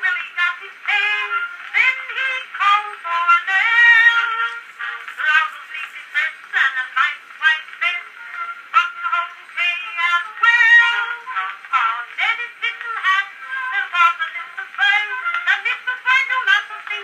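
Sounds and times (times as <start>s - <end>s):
woman singing comic song: 0.0s - 17.0s.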